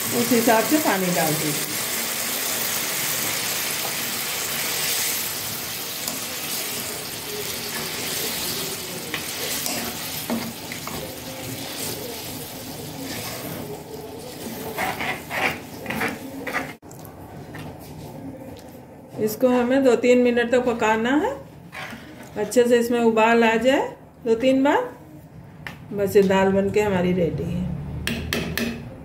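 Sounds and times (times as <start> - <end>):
hot oil sizzling in a pan: 0.0 - 13.6.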